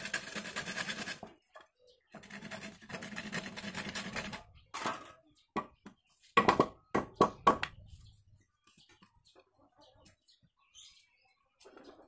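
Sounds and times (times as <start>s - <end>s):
handsaw rasping through wood: 0.0s - 1.2s, 2.2s - 4.4s
sharp wooden knocks: 5.6s - 7.8s.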